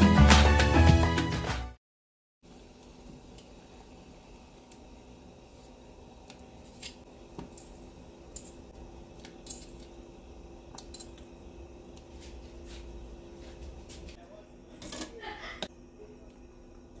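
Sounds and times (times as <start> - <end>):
water boiling: 2.4 - 14.1.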